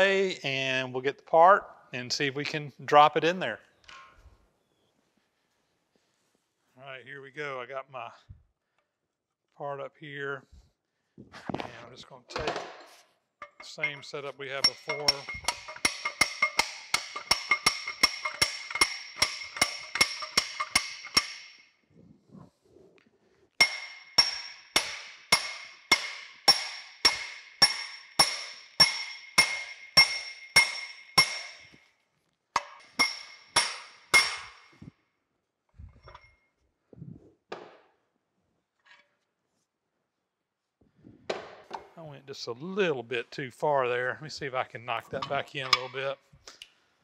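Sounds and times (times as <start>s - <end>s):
hammer striking steel bar: 13.4s - 21.7s, 23.6s - 31.8s, 32.6s - 34.7s.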